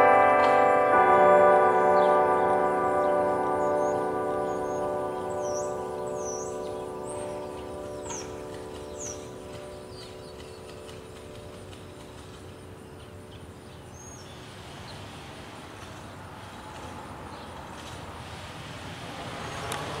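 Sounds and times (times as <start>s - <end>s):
church bell tone: 0.0s - 14.4s
bird chirp: 0.0s - 15.1s
outdoor noise: 0.0s - 20.0s
traffic noise: 0.0s - 20.0s.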